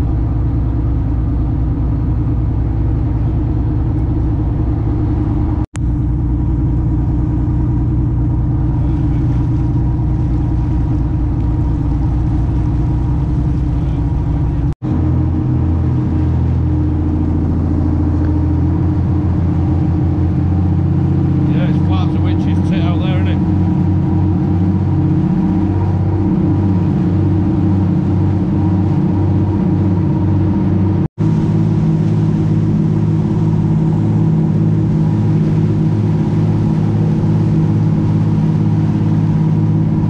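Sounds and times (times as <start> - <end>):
boat engine running: 0.0 - 40.0.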